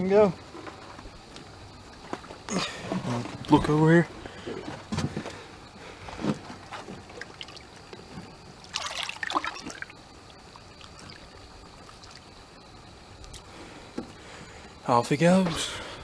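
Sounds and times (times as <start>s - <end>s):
water splashing and trickling: 6.8s - 12.6s.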